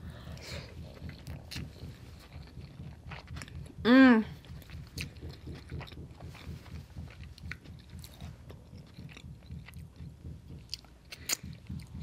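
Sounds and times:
closed-mouth chewing: 0:00.0 - 0:12.0
wet mouth clicks: 0:10.6 - 0:12.0.

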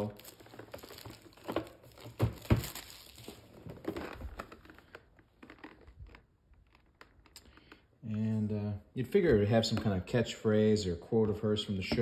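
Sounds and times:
cardboard and plastic rustling: 0:00.0 - 0:07.8.

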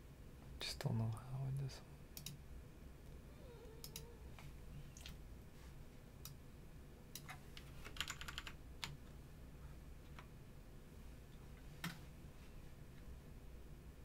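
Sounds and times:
low steady hum: 0:00.0 - 0:14.0
keyboard typing: 0:07.2 - 0:09.0.

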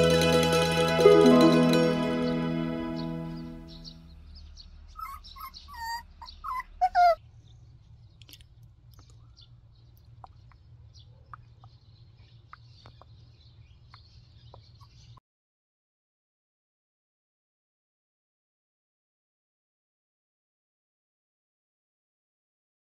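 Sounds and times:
puppy whining yips: 0:05.0 - 0:07.2.

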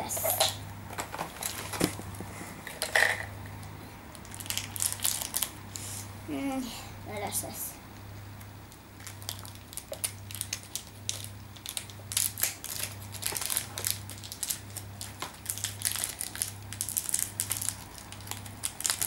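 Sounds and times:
plastic wrapper crinkling: 0:00.2 - 0:02.1, 0:04.1 - 0:05.5, 0:09.0 - 0:19.0.

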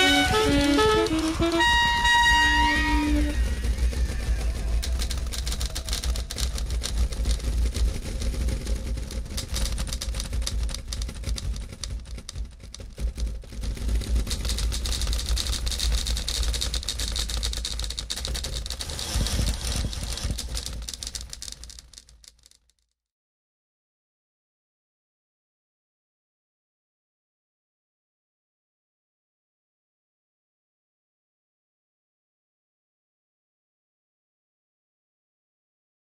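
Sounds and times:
typewriter keys clattering: 0:00.0 - 0:02.1, 0:04.6 - 0:22.6
steady low rumble: 0:00.0 - 0:16.3.

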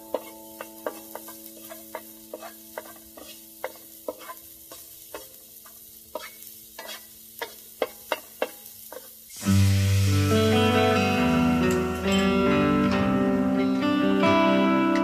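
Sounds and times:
spatula knocking and scraping wok: 0:00.0 - 0:09.3
steady sizzle: 0:00.0 - 0:15.0.

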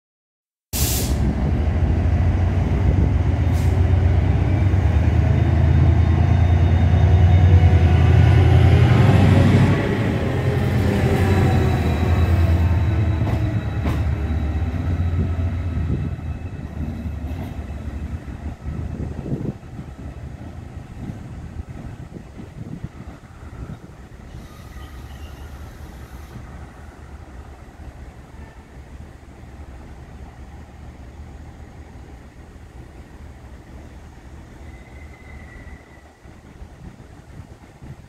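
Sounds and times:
locomotive engine drone passing: 0:01.2 - 0:28.2.

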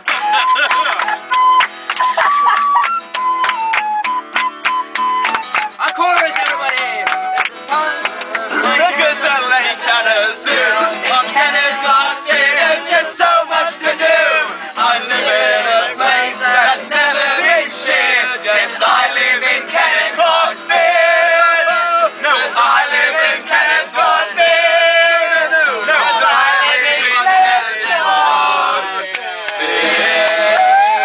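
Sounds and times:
acoustic guitar: 0:00.0 - 0:31.0
men singing together: 0:08.5 - 0:30.9.

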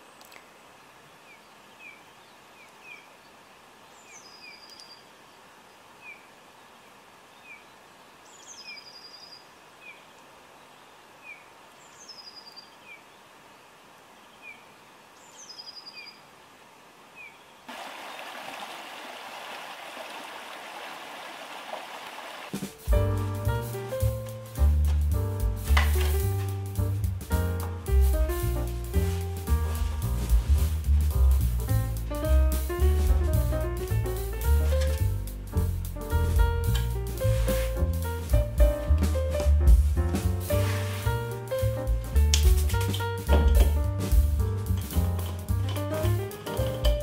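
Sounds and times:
falling bird song phrase: 0:01.1 - 0:16.3
bird chirps: 0:15.2 - 0:16.2
stream running over rocks: 0:16.4 - 0:22.6.

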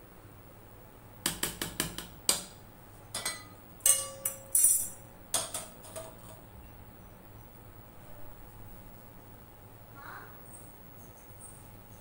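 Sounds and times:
steel utensils clinking: 0:03.2 - 0:06.4.

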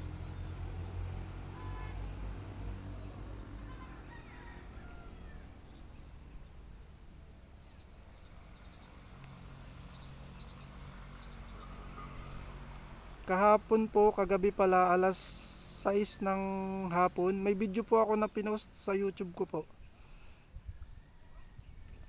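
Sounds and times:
low traffic hum: 0:00.0 - 0:22.0
insects chirping in trills: 0:04.7 - 0:09.0.

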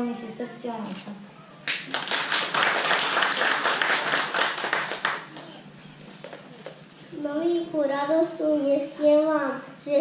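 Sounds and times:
audience clapping: 0:01.6 - 0:05.6.

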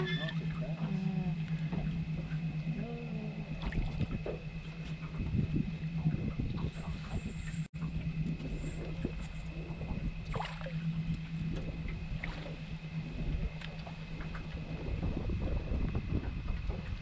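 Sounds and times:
boat machine hum: 0:00.0 - 0:17.0
small splashes: 0:10.2 - 0:10.8.

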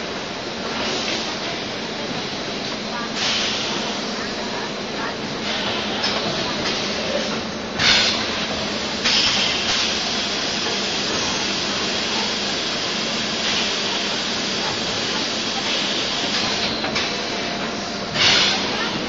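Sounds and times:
machine mechanical hum: 0:00.0 - 0:19.0
loud burst of air hiss: 0:03.1 - 0:04.2, 0:06.8 - 0:19.0.

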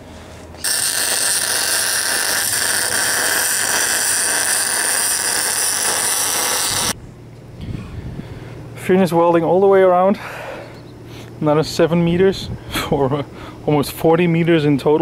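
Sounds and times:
welder crackling: 0:00.6 - 0:07.0.

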